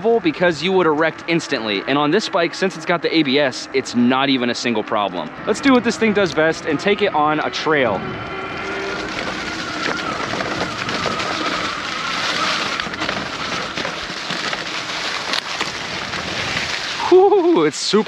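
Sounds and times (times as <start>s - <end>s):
hub motor whine: 0.0s - 17.6s
bike tyres rustling through leaves: 5.4s - 18.0s.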